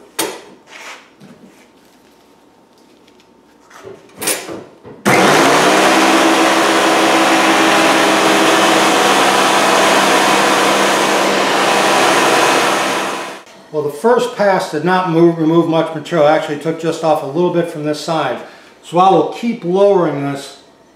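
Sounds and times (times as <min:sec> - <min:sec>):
thickness planer running: 0:05.1 - 0:13.4.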